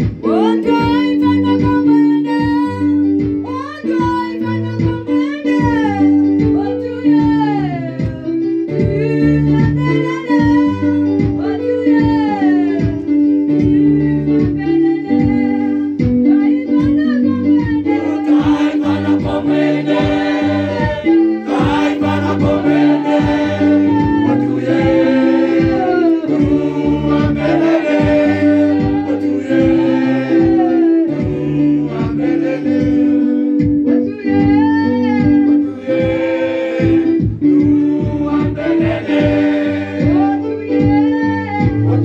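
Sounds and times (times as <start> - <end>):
gospel song: 0.0 - 42.0
guitar: 0.0 - 42.0
group singing: 17.9 - 33.6, 35.6 - 40.6, 41.7 - 42.0
steady drum beat: 18.0 - 33.8, 34.4 - 42.0.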